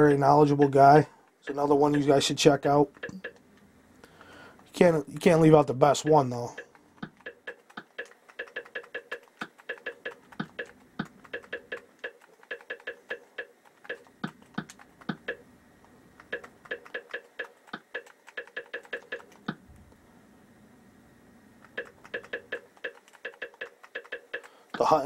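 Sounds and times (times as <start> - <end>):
remote control buttons clicking: 2.9 - 3.4, 6.0 - 15.4, 16.2 - 19.6, 21.6 - 24.9.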